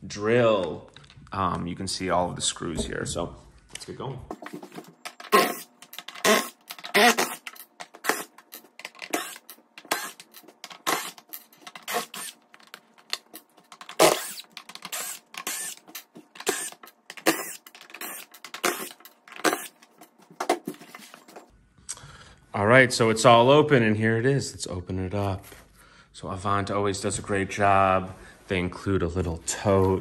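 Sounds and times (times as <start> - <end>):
cordless drill whine: 9.1 - 11.2, 11.8 - 12.4, 14.0 - 15.8.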